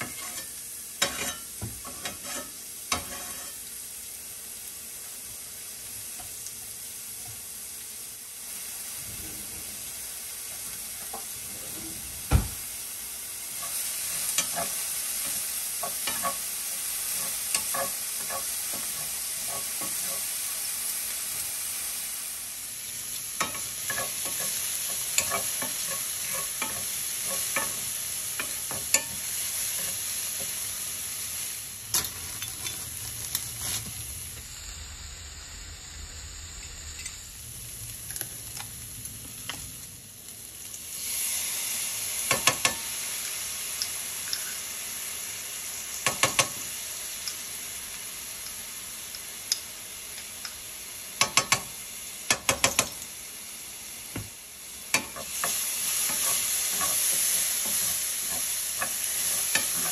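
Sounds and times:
onions sizzling in a frying pan: 0:00.0 - 0:59.9
utensil tapping on pan: 0:42.3 - 0:42.8, 0:46.0 - 0:46.6, 0:51.2 - 0:51.7, 0:52.3 - 0:53.0.

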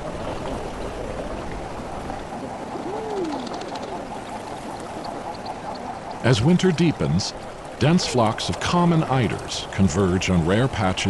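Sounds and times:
cooing bird calls: 0:02.2 - 0:06.4.

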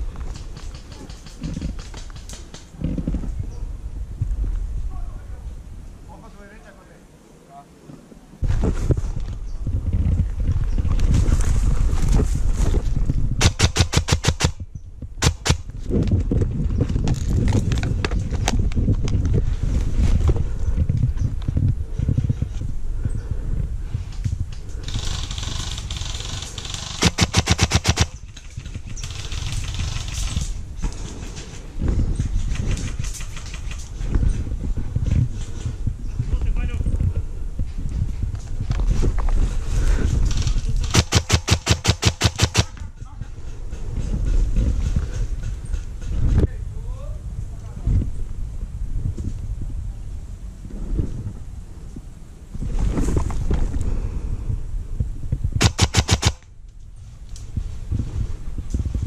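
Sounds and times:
rustle of movement: 0:04.2 - 0:14.0
airsoft rifle shots: 0:13.4 - 0:14.6, 0:15.2 - 0:15.7, 0:24.9 - 0:30.4, 0:40.8 - 0:42.8, 0:55.6 - 0:56.4.

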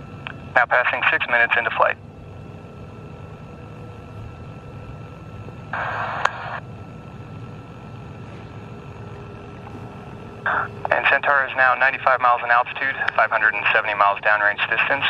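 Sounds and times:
faint steady tones: 0:00.0 - 0:15.0
steady low hum: 0:00.0 - 0:15.0.

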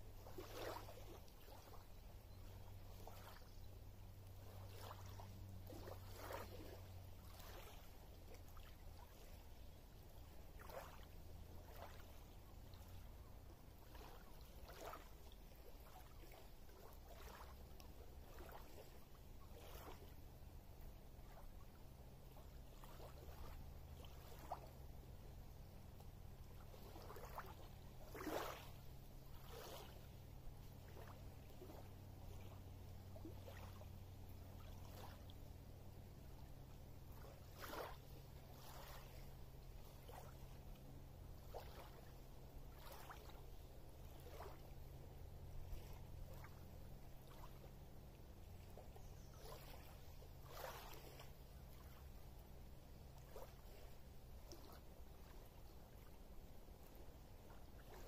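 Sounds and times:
low steady rumble: 0:00.0 - 0:58.0
small waves lapping on pebbles: 0:00.1 - 0:58.0.

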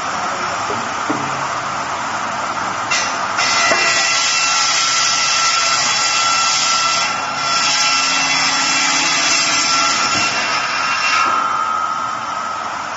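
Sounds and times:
circular saw cutting wood: 0:02.9 - 0:11.9.

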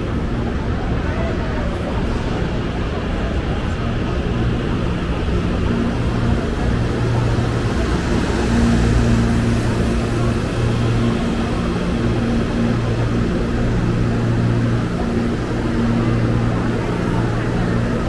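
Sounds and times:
electric train humming: 0:00.0 - 0:18.0
low pitched drone: 0:04.4 - 0:18.0.

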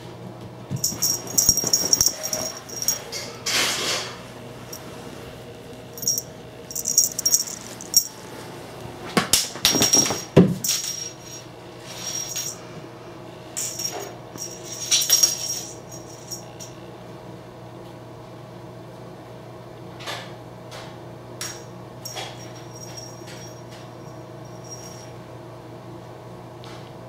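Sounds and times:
cat toy clinking and rattling: 0:00.7 - 0:03.9, 0:06.0 - 0:08.2, 0:09.6 - 0:12.6, 0:13.6 - 0:16.8, 0:21.4 - 0:25.1.

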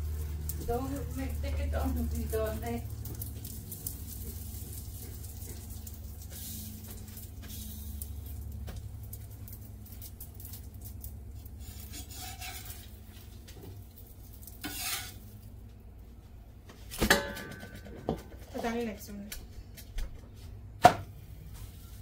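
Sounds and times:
food sizzling in a pot: 0:00.0 - 0:15.6
spoon stirring and scraping pot: 0:11.0 - 0:15.5.

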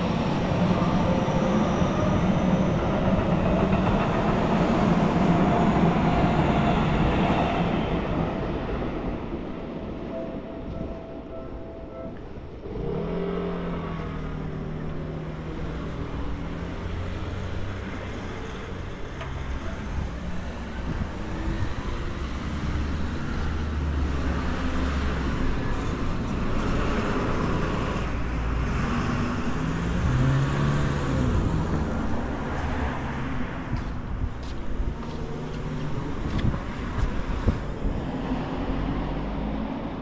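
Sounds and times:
road rumble: 0:00.0 - 0:40.0
vehicle engine: 0:11.8 - 0:40.0.

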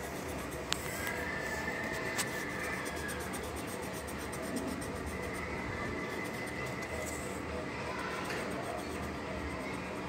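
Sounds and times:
pencil scratching on paper: 0:00.0 - 0:07.4, 0:08.1 - 0:10.0.

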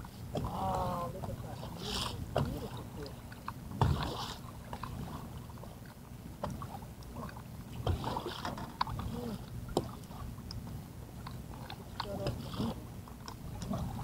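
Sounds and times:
knocks and clatter of fishing gear: 0:07.8 - 0:08.8.

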